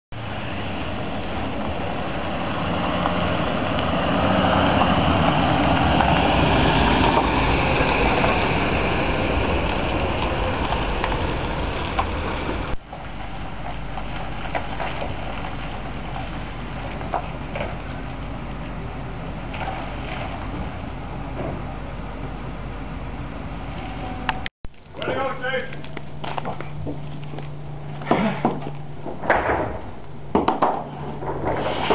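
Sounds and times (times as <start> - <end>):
steady rumble: 0.1 - 31.9
pickup truck driving past: 0.2 - 21.3.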